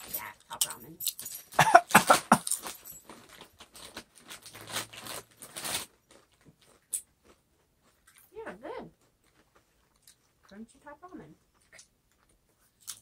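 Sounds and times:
foil chip bag crinkling: 0.0 - 8.3
potato chips crunching: 1.0 - 8.3, 11.7 - 13.0.

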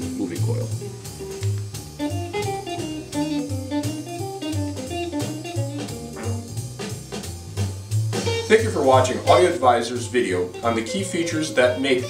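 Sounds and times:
light drums: 0.0 - 12.0
repeating bass line: 2.2 - 9.8
plucked guitar melody: 2.4 - 6.6, 8.3 - 9.8.

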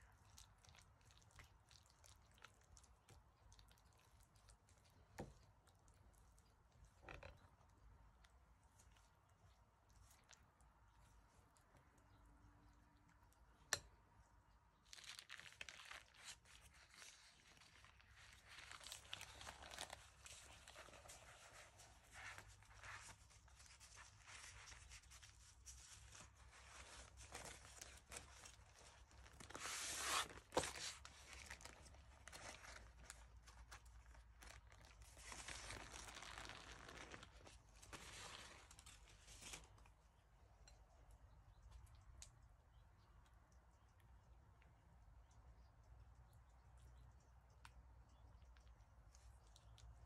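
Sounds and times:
baking paper rustling and crinkling: 14.9 - 40.0.

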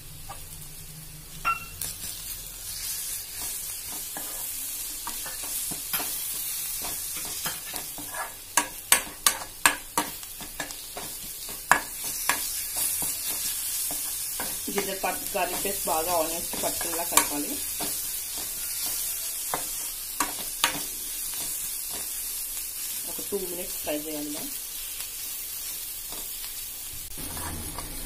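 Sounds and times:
food sizzling in hot oil: 0.0 - 28.0
spoon scraping and clinking on pan: 1.4 - 1.8, 3.4 - 14.6, 16.5 - 22.0.

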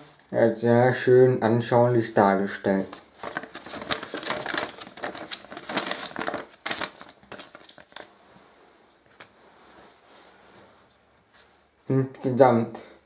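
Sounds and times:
paper rustling and crinkling: 2.7 - 8.2.

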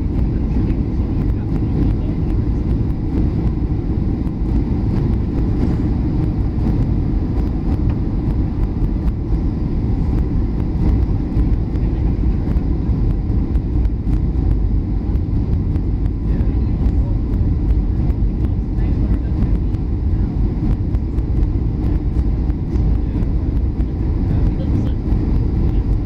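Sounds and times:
airplane cabin drone: 0.0 - 26.0.

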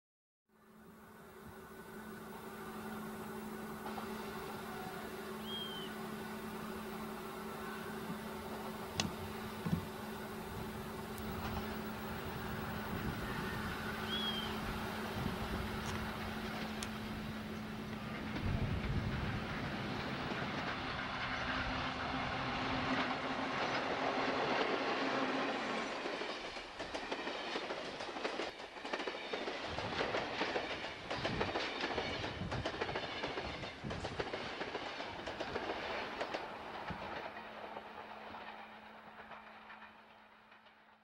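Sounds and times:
electric locomotive humming: 0.5 - 41.0
train wheels clicking over rail joints: 8.0 - 13.2, 14.0 - 41.0.

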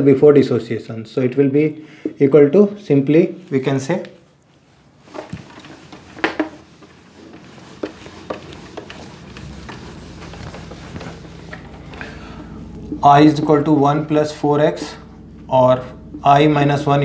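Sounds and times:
cloth rubbing on whiteboard: 4.6 - 12.0.

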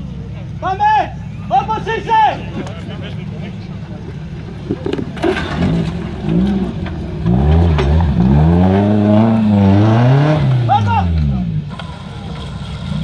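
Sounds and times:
buggy engine revving: 0.0 - 13.0.

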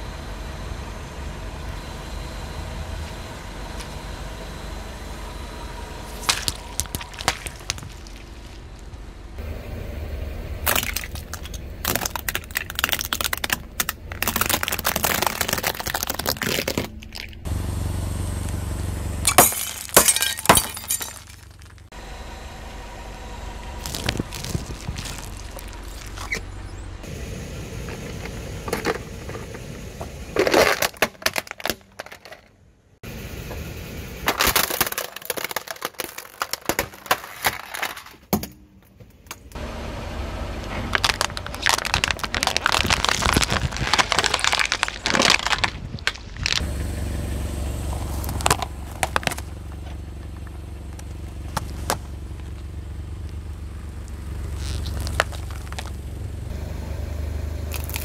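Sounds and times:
low engine rumble: 0.0 - 58.0
tyre crushing brittle objects: 6.1 - 9.0, 10.6 - 17.5, 19.2 - 21.9, 23.8 - 26.5, 30.4 - 32.5, 34.3 - 38.5, 40.7 - 46.7, 47.9 - 56.0, 57.7 - 58.0
sharp cracks: 10.6 - 17.5, 34.3 - 37.9, 40.9 - 46.7.

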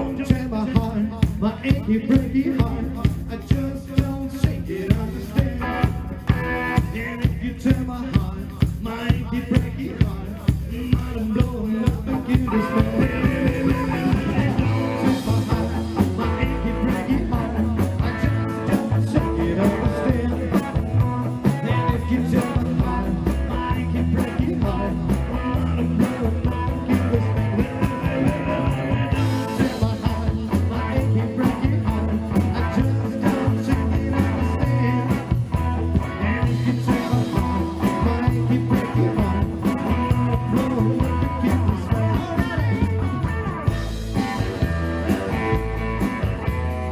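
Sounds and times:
bass line: 0.0 - 46.9
electric guitar: 0.0 - 46.9
steady drum beat: 0.0 - 46.9.

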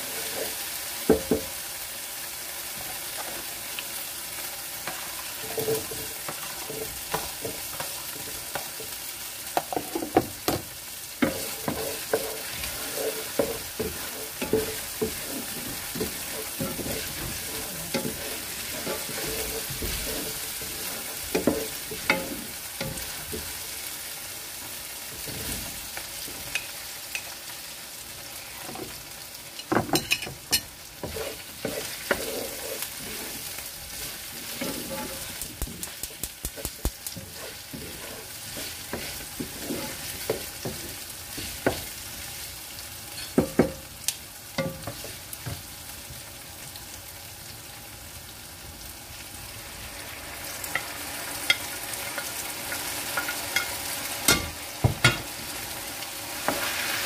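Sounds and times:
wooden spatula scraping a pot: 0.0 - 0.7, 4.8 - 8.7, 11.2 - 23.6, 30.0 - 41.9
food sizzling in a pot: 0.0 - 57.0.

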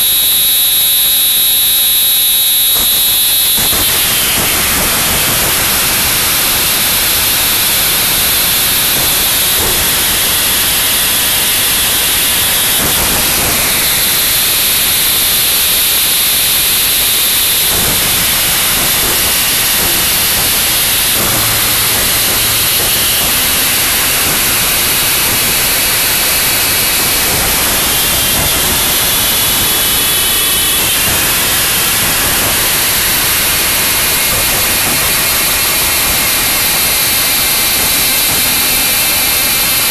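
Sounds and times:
distorted static noise: 0.0 - 39.9
faint high whines: 0.0 - 39.9.

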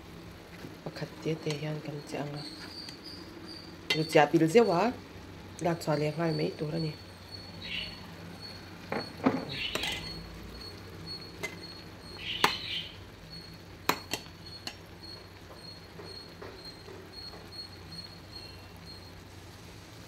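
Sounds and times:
metal ladle clinking on pot: 3.9 - 4.2, 8.9 - 10.2, 11.4 - 11.6, 13.9 - 14.8.

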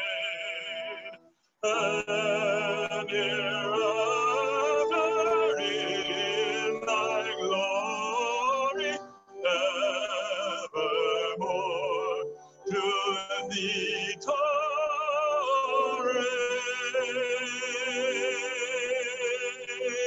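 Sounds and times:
held accompanying notes: 0.0 - 14.8
solo voice singing with vibrato: 0.0 - 20.0.

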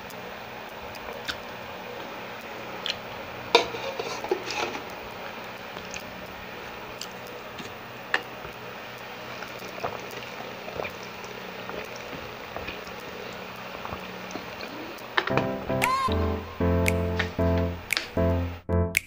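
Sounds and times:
steady background hiss: 0.0 - 18.6
sucking and swallowing: 9.2 - 15.2
music: 15.2 - 19.0.

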